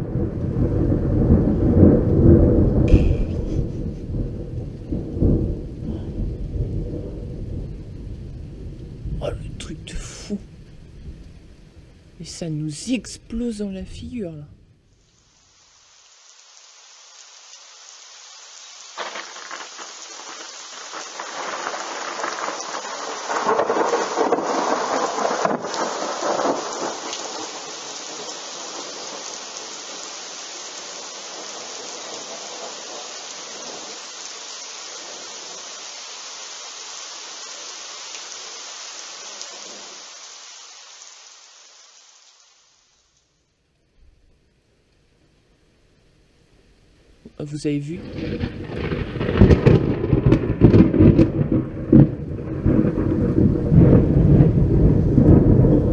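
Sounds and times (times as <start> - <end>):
thunder rumbling: 0.0 - 15.0, 18.9 - 34.4, 48.0 - 55.9
rain falling steadily: 0.0 - 55.9.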